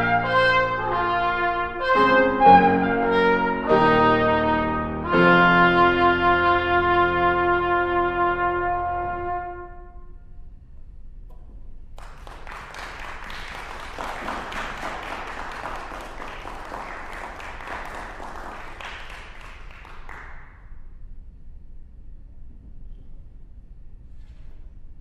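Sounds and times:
trumpet note: 0:00.0 - 0:10.5
audience applauding: 0:12.0 - 0:20.6.

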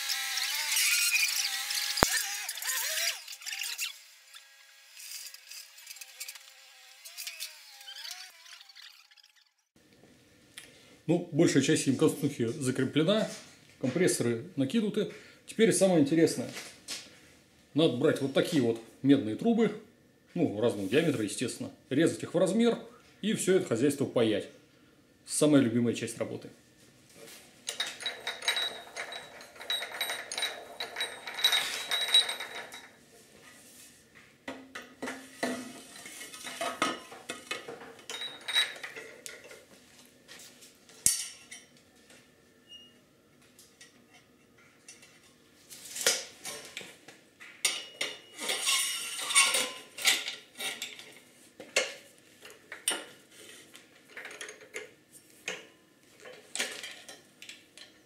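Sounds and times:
tubing cutter cutting pipe: 0:00.0 - 0:09.4
copper pipes clinking against metal: 0:27.7 - 0:33.0.

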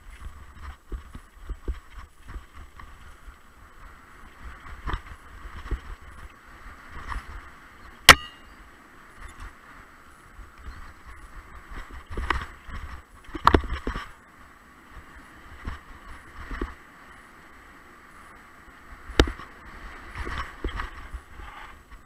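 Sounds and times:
bike rolling on dirt trail: 0:00.0 - 0:08.0, 0:08.7 - 0:22.0
bike knocks and rattles: 0:11.8 - 0:14.2.

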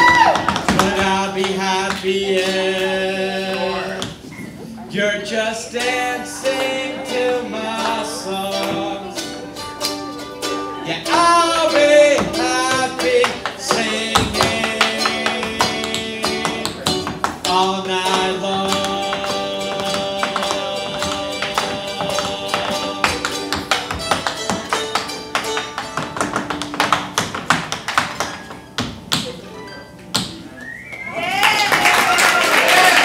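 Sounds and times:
tap shoes clicking on hard floor: 0:00.0 - 0:02.1, 0:11.1 - 0:29.4
strummed guitar song: 0:05.0 - 0:27.4.

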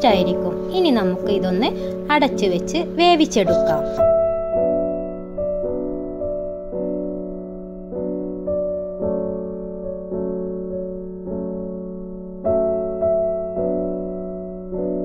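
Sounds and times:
soft piano music: 0:00.0 - 0:15.0.

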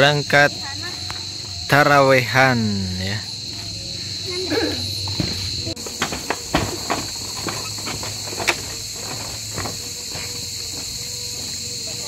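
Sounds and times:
night insects chorus: 0:00.0 - 0:12.0
footsteps on bamboo slats: 0:03.3 - 0:12.0.

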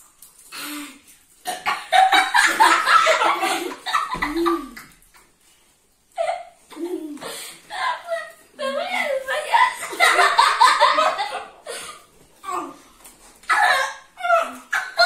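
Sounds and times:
children laughing and squealing: 0:06.2 - 0:15.0.

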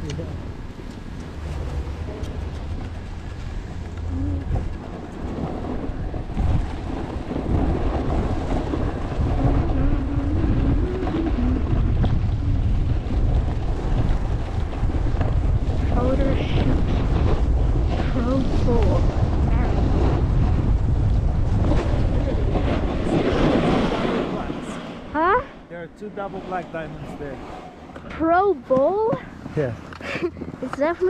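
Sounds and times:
wind buffeting microphone: 0:00.0 - 0:31.0
skis scraping over snow: 0:05.3 - 0:20.6.

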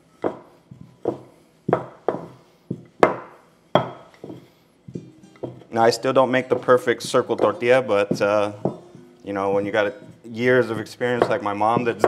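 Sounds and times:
rolling pin knocking on stone countertop: 0:00.2 - 0:05.7, 0:06.5 - 0:09.0, 0:11.1 - 0:12.0.

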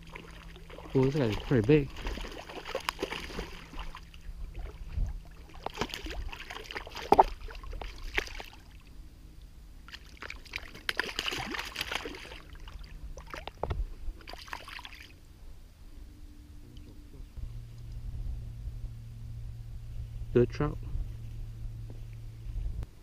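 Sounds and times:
fish thrashing and splashing in water: 0:00.0 - 0:08.8, 0:09.9 - 0:13.6, 0:14.2 - 0:15.2.

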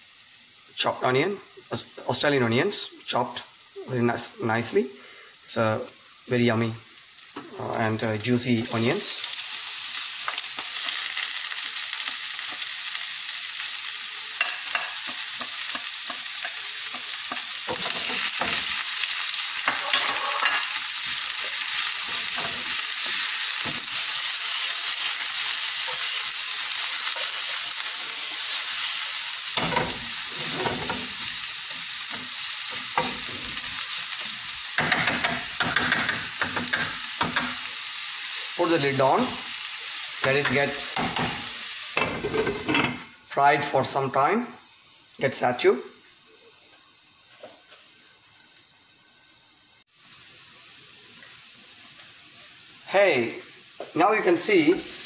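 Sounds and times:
onions frying in hot oil: 0:00.0 - 0:55.0
spatula scraping a pan: 0:14.4 - 0:19.0, 0:19.6 - 0:29.0, 0:29.6 - 0:33.9.

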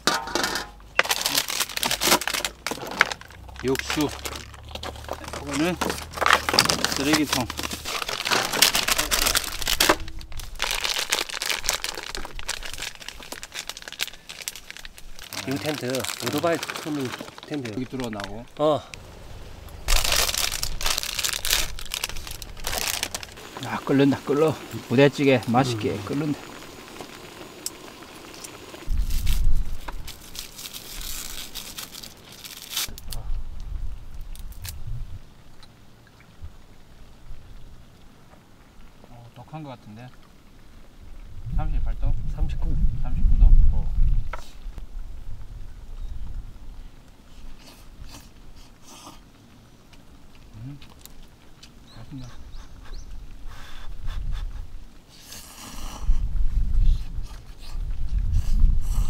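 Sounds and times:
plastic packaging crinkling: 0:00.9 - 0:18.7, 0:19.6 - 0:24.0, 0:25.5 - 0:33.2
low microphone rumbles: 0:17.7 - 0:23.8, 0:32.9 - 0:35.4, 0:40.9 - 0:46.8, 0:56.1 - 0:59.0.

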